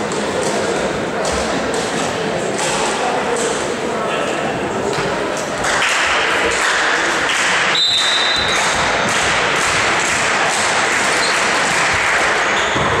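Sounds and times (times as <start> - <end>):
sports hall din: 0.0 - 13.0
referee whistle: 7.7 - 8.6
ball bouncing on wooden floor: 12.6 - 13.0.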